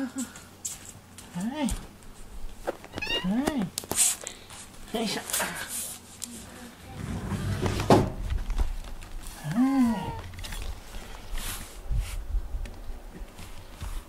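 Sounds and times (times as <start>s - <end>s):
cat meowing: 3.0s - 3.4s, 9.8s - 10.3s
low rustling and bumping: 6.8s - 9.4s.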